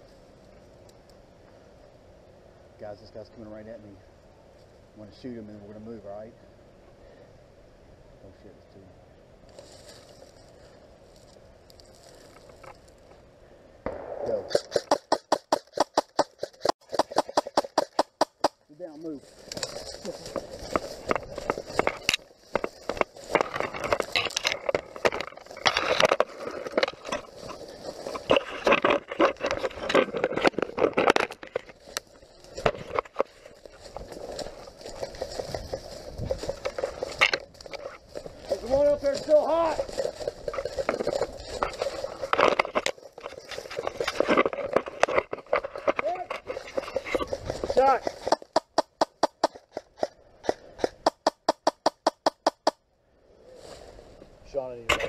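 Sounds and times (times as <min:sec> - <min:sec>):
footsteps crunching through dry leaves: 0:09.5 - 0:12.7, 0:18.9 - 0:48.6.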